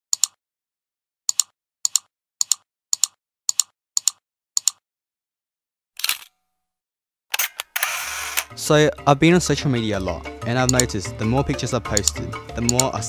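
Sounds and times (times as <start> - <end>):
sharp double clicks: 0.1 - 0.4, 1.3 - 4.8, 10.7 - 10.9.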